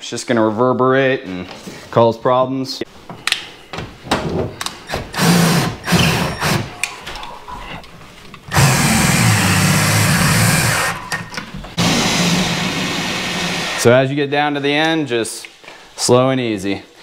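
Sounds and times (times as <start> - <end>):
cordless drill driving screws: 4.9 - 6.7, 8.5 - 11.0, 11.8 - 13.8.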